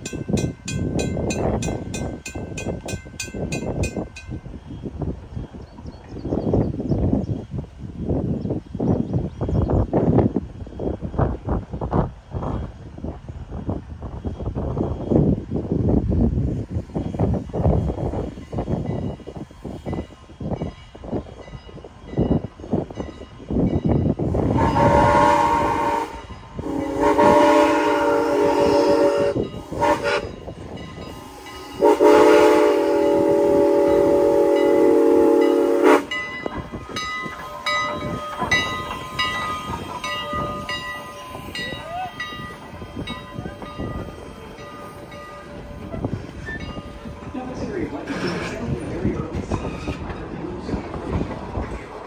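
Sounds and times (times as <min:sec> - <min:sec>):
train rolling past: 0:00.0 - 0:52.0
chime steam whistle blasts: 0:24.4 - 0:45.8.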